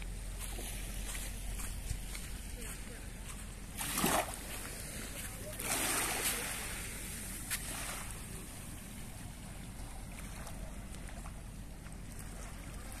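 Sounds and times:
small waves washing onto sand: 0.0 - 13.0.

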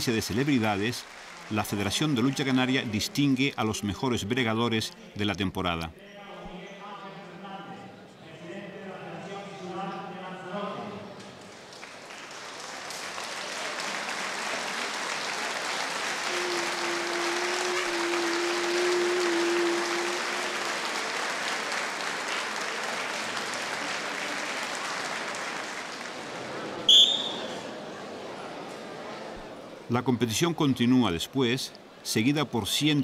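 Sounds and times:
crowd applauding: 0.0 - 3.4, 11.4 - 27.8.

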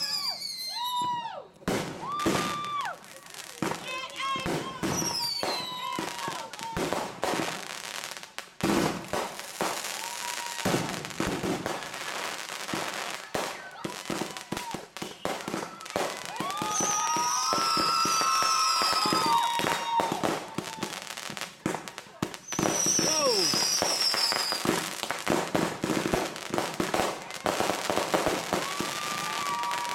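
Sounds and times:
firework whistles: 0.0 - 1.2, 4.8 - 6.2, 15.0 - 21.0, 22.3 - 24.8, 28.1 - 29.9
firework bangs and crackling: 0.0 - 29.9.

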